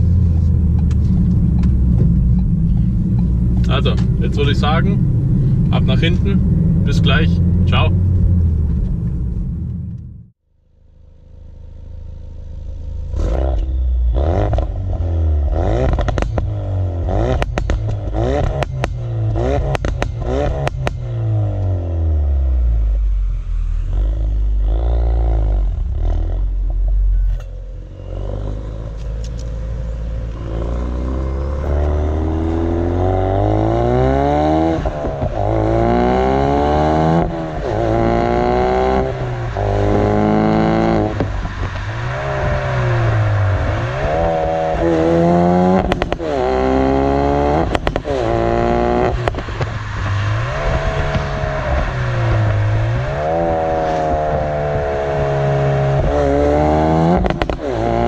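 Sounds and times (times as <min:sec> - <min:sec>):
exhaust pops and crackles: 0:00.0 - 0:05.0, 0:15.8 - 0:16.6, 0:17.2 - 0:21.7, 0:34.6 - 0:35.8, 0:37.1 - 0:56.3, 0:57.1 - 0:58.0
car engine revving: 0:00.0 - 0:10.4, 0:11.1 - 0:58.0.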